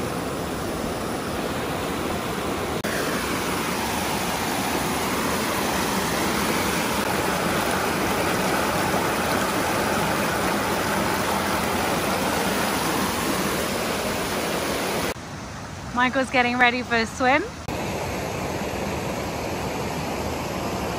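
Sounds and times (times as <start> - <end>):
stream rushing over rock: 0.0 - 15.5.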